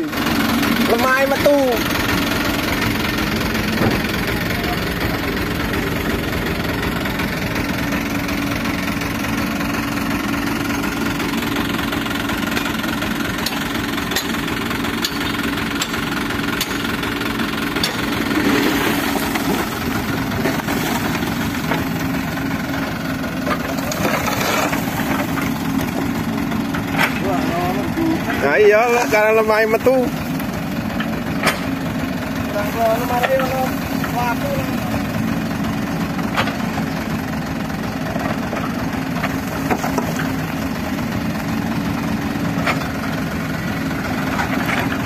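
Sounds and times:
diesel engine idling: 0.0 - 45.0
soil sliding out: 17.8 - 27.3.

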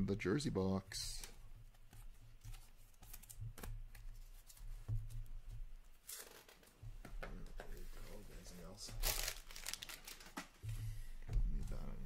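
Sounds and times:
cards rustling and flicking: 1.0 - 5.2, 6.0 - 6.8, 8.8 - 10.6.

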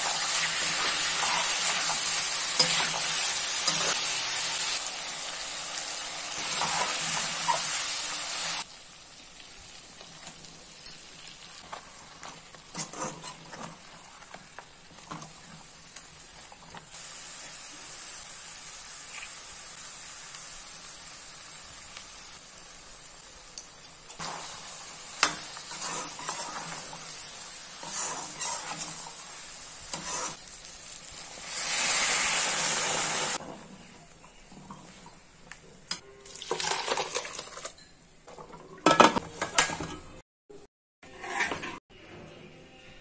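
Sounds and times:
spatula scraping pan: 0.0 - 4.0, 11.7 - 15.6, 25.2 - 27.1, 27.8 - 29.2, 29.8 - 30.4, 41.0 - 41.8
chicken sizzling in oil: 0.0 - 33.4.

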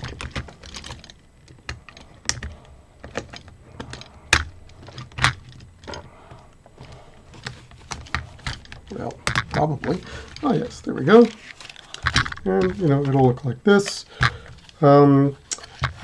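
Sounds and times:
plastic bricks clicking: 0.0 - 16.0
plastic bricks snapping: 6.8 - 13.3, 15.5 - 16.0.

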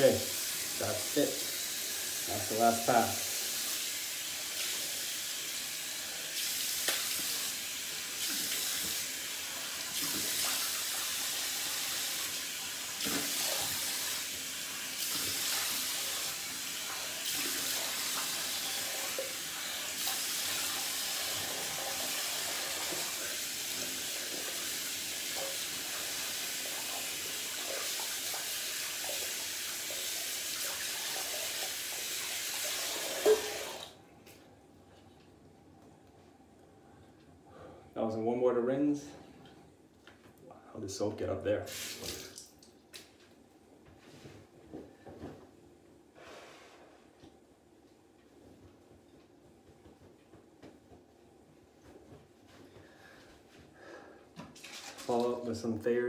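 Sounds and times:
water splashing on face: 41.7 - 43.1.

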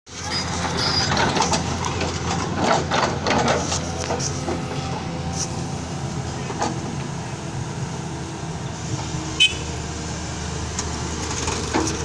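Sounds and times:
excavator diesel engine droning: 0.1 - 12.0
knocks and clatter: 0.6 - 5.0, 10.8 - 12.0.

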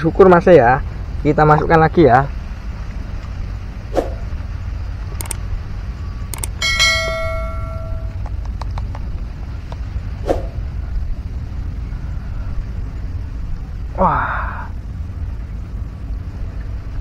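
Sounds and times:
low rumble: 2.2 - 8.5, 9.1 - 17.0
quick pair of clicks: 5.2 - 5.4
bell-like ding: 6.6 - 8.2.

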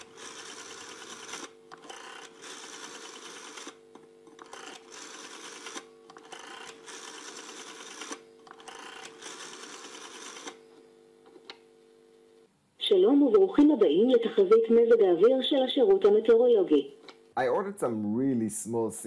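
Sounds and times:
rotary telephone dial whirring: 0.0 - 10.8.

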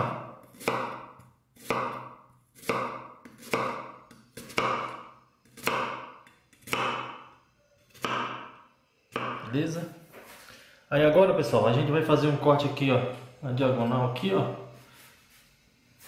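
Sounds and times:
knife slicing onion on wooden board: 0.0 - 7.2, 7.9 - 9.6.

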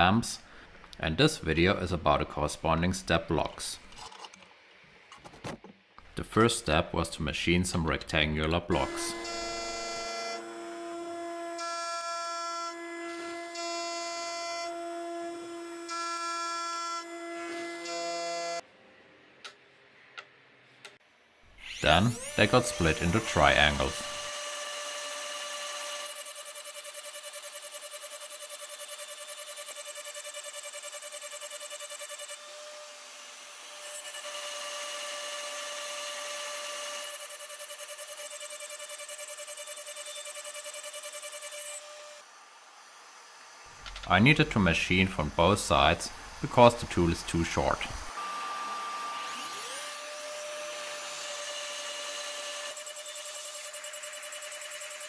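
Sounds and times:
end mill cutting metal: 21.6 - 26.3.

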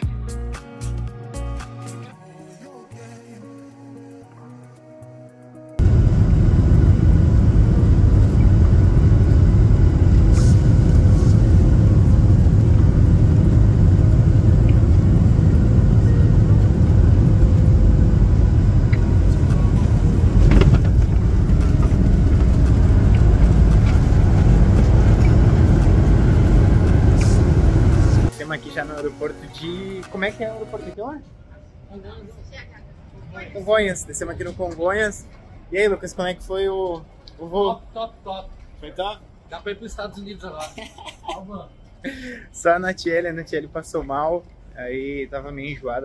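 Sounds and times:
airliner cabin engine roar: 5.8 - 28.3
brief knock: 20.4 - 21.2.

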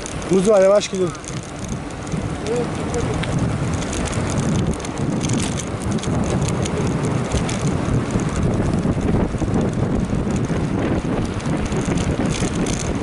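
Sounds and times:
bicycle tyres rumbling on asphalt: 0.0 - 13.0
small rattles: 0.0 - 13.0
wind buffeting microphone: 0.0 - 13.0.

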